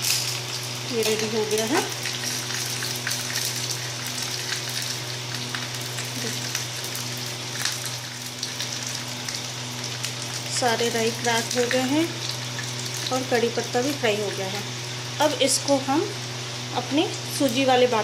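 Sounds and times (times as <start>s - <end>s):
oil popping and crackling: 0.0s - 14.4s
seeds and leaves sizzling in hot oil: 0.0s - 18.0s.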